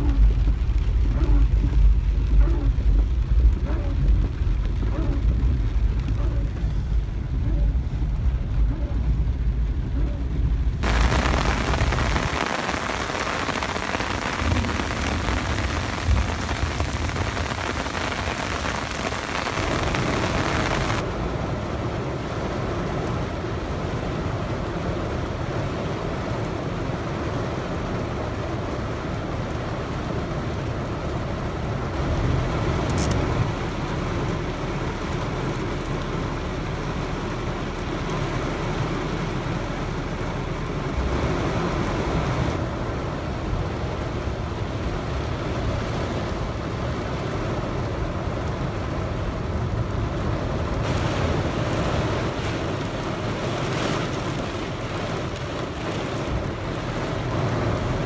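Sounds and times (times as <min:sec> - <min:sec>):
deep rumble: 0:00.0 - 0:27.7
heavy rain on car: 0:00.0 - 0:58.0.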